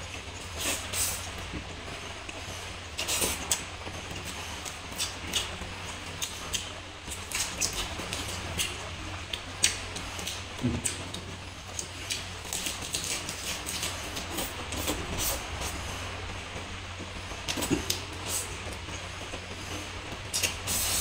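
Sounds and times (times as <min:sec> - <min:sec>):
steady low hum: 0:00.0 - 0:21.0
chewing and crunching: 0:04.2 - 0:15.8.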